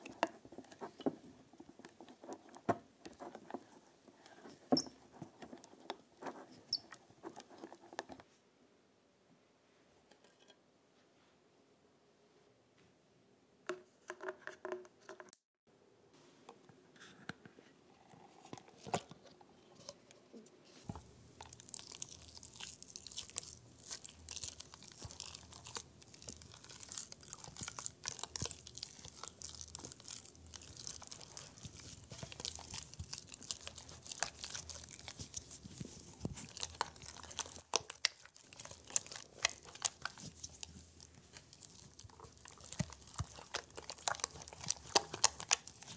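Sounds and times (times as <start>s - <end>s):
spatula scraping thick custard: 20.9s - 45.9s.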